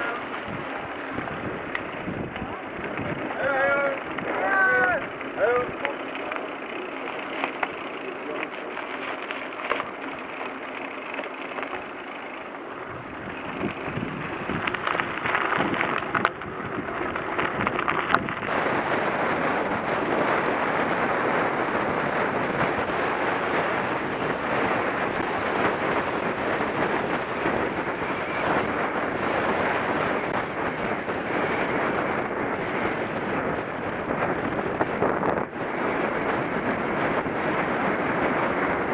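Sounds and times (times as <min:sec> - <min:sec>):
bike tyres crunching on gravel: 0:00.0 - 0:21.3
wind noise on microphone: 0:00.0 - 0:38.9.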